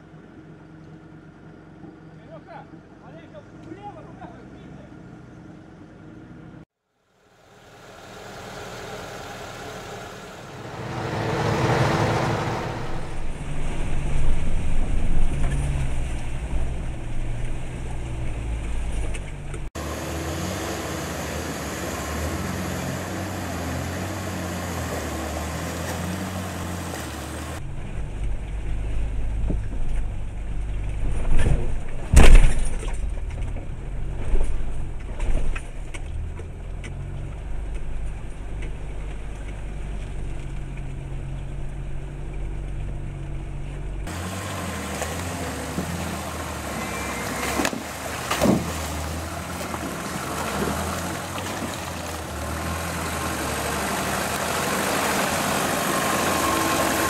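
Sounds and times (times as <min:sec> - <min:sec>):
off-road engines labouring: 0:00.0 - 0:06.6, 0:07.3 - 0:57.0
rushing noise: 0:07.4 - 0:15.3.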